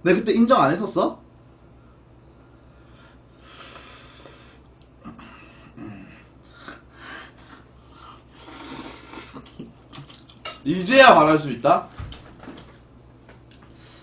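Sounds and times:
mouth clicks and smacking: 0:07.4 - 0:10.5
man slurping spaghetti: 0:07.6 - 0:10.2.

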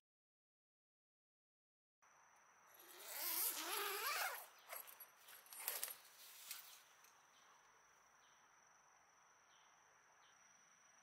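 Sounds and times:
high insect trill: 0:02.1 - 0:11.0
tent zipper pulled open: 0:02.8 - 0:06.8.

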